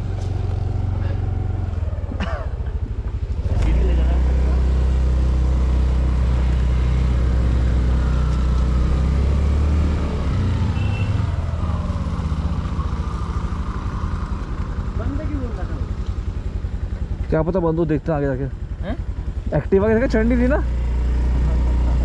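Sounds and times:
scooter engine running: 0.0s - 22.0s.

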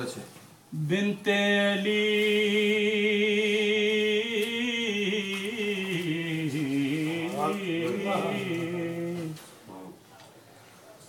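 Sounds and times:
man singing a long held note: 0.8s - 9.4s.

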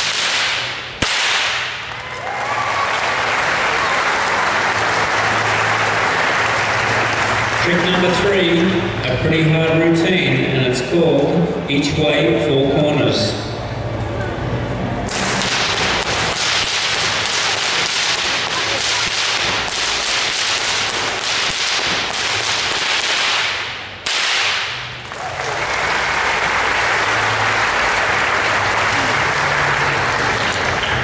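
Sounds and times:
whips cracking: 0.0s - 2.0s, 15.1s - 25.2s
audience applause: 1.9s - 9.0s, 25.0s - 31.0s.

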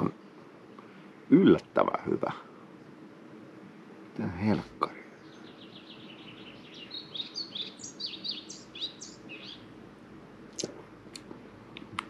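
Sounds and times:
songbird singing: 0.0s - 12.0s.

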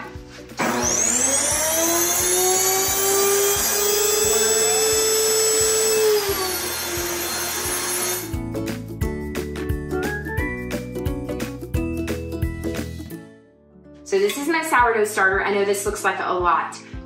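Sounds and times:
grain mill motor whining: 0.6s - 8.4s.

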